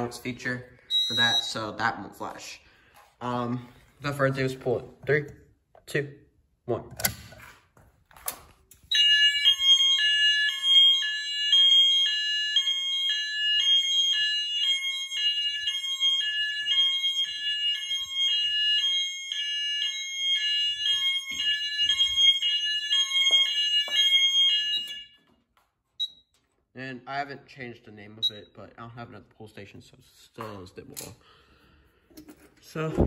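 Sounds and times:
two-tone fire alarm siren: 0:00.0 - 0:01.8, 0:08.8 - 0:26.3.

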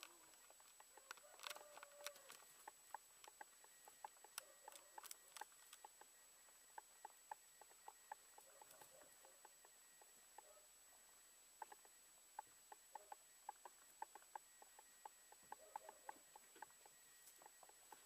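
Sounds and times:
rabbits nibbling: 0:00.0 - 0:18.0.

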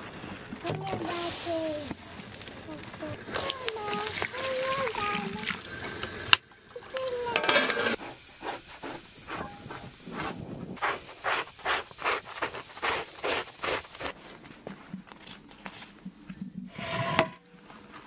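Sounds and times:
person speaking: 0:00.6 - 0:05.6
scraper rasping on fur hide: 0:08.0 - 0:14.3.

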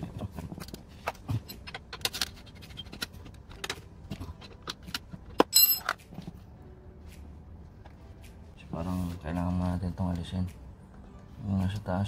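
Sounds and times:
hand tools clinking on metal: 0:05.4 - 0:06.0.

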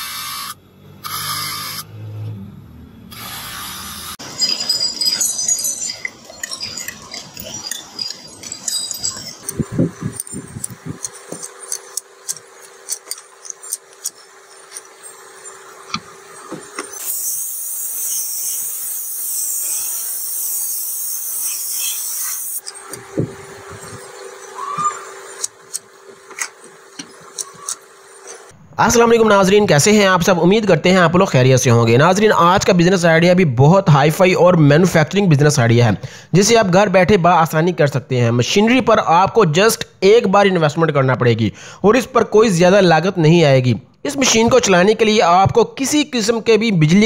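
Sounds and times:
brake shoe squealing on grinding disc: 0:03.2 - 0:28.5
steady hiss: 0:14.0 - 0:23.3.

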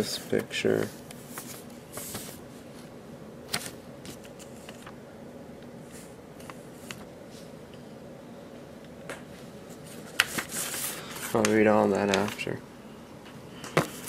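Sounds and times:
faint steady hum: 0:00.0 - 0:14.0
paper crackling and rustling: 0:00.3 - 0:02.4, 0:03.5 - 0:05.0, 0:09.7 - 0:12.5.

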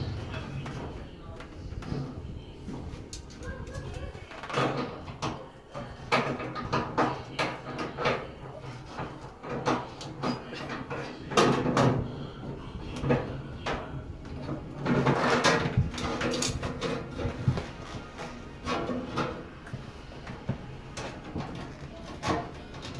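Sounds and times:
metal knocks clanks and scrapes: 0:13.0 - 0:19.5.

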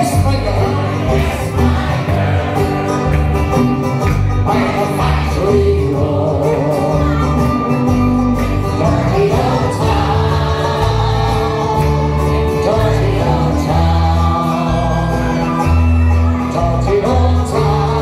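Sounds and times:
folk band playing: 0:00.0 - 0:18.0
person singing: 0:04.5 - 0:07.9, 0:08.7 - 0:18.0.

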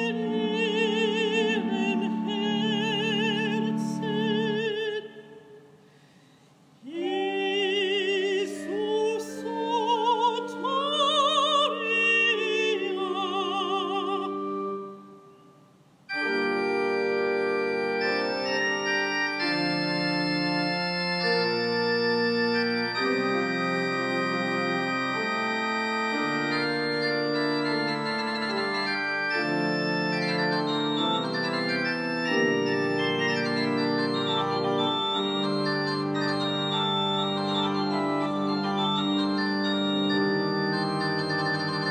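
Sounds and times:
organ chords: 0:00.0 - 0:05.0, 0:08.7 - 0:15.4, 0:16.1 - 0:41.9
soprano singing with vibrato: 0:00.0 - 0:05.7, 0:06.8 - 0:15.0.

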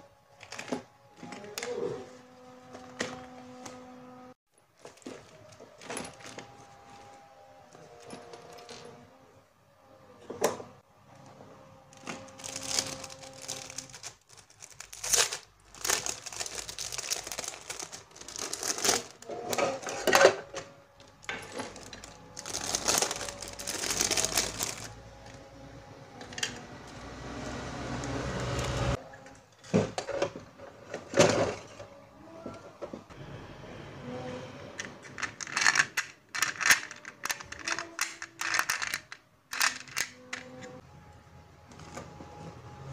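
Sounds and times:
plastic bag crinkling: 0:12.0 - 0:19.9, 0:21.0 - 0:25.4.

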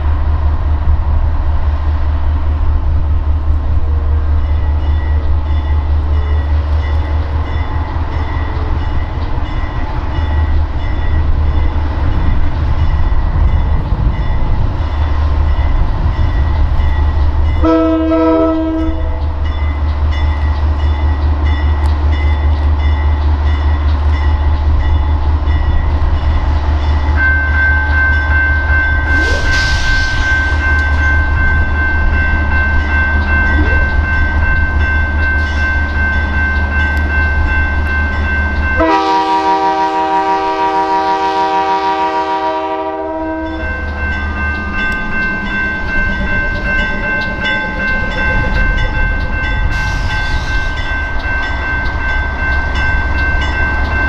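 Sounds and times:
diesel locomotive rumbling: 0:00.0 - 0:54.0
train horn: 0:17.6 - 0:19.3, 0:38.8 - 0:43.8.

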